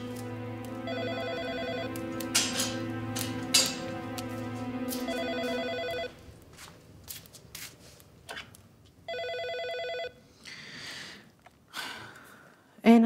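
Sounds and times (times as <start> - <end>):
phone ringing electronic warble: 0.9 - 1.9, 5.1 - 6.2, 9.1 - 10.2.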